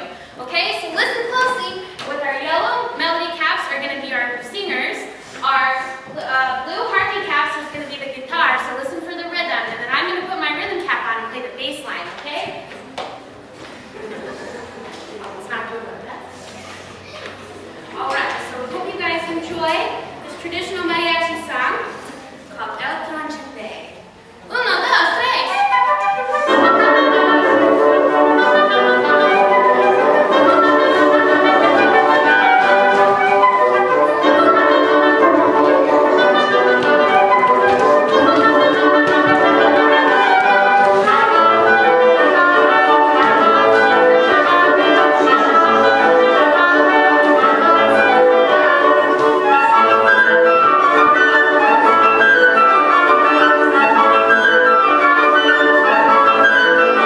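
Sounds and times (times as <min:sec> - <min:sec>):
woodwind quintet playing: 0:25.3 - 0:57.0.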